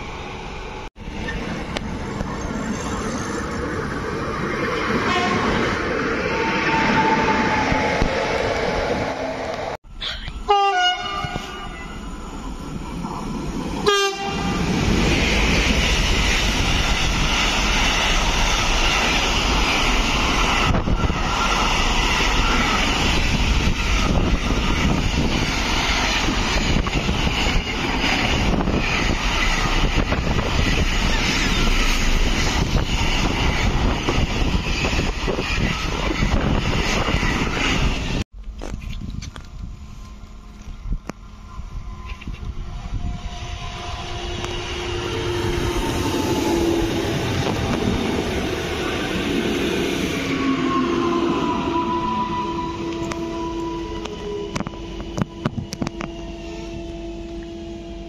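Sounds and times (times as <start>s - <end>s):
freight train rumbling past: 0.0s - 38.3s, 39.0s - 58.0s
train horn blasts: 5.0s - 5.6s, 10.4s - 12.2s, 13.8s - 14.7s, 41.6s - 48.0s, 49.9s - 58.0s.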